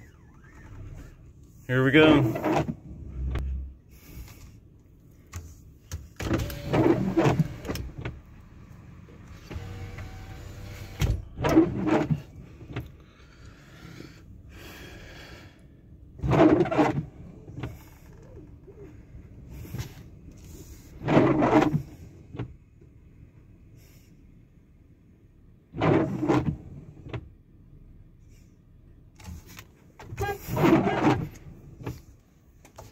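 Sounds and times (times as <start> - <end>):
windshield wipers sweeping: 0.0 - 4.2, 5.1 - 13.0, 16.0 - 23.0, 25.7 - 27.3, 29.2 - 32.9
car cabin hum: 0.0 - 32.9
wiper motor whining: 6.2 - 8.4, 9.2 - 12.9.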